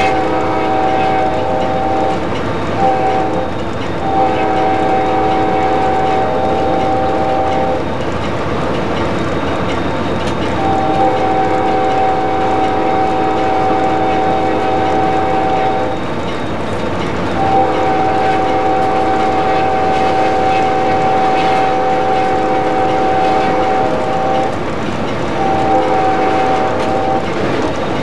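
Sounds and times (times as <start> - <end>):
locomotive air horn blasts: 0.0 - 2.2, 2.8 - 7.9, 10.6 - 16.0, 17.4 - 24.6, 25.4 - 27.3
locomotive running noise: 0.0 - 28.0.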